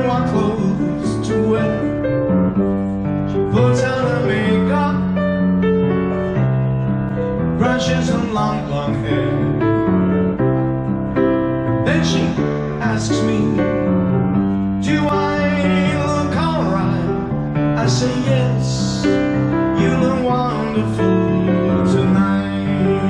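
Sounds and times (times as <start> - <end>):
man singing: 0.0 - 2.3, 3.3 - 5.4, 7.6 - 9.8, 11.8 - 14.1, 14.7 - 23.0
piano chords: 0.0 - 23.0.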